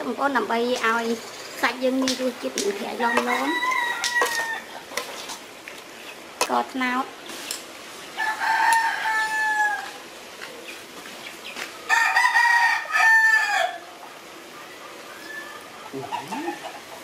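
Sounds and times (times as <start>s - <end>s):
rooster crowing: 3.0s - 4.9s, 8.2s - 10.0s, 11.9s - 14.0s, 14.6s - 16.9s.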